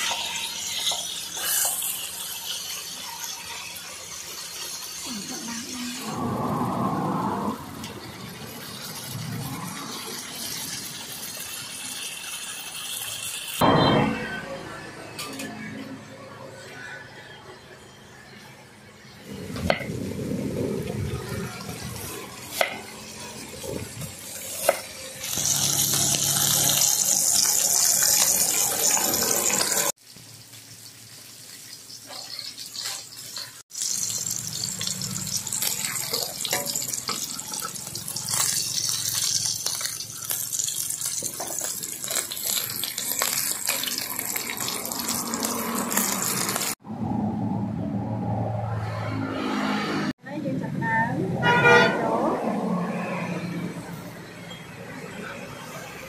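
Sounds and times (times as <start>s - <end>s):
meat sizzling in oil: 0.0s - 13.6s, 19.8s - 46.8s.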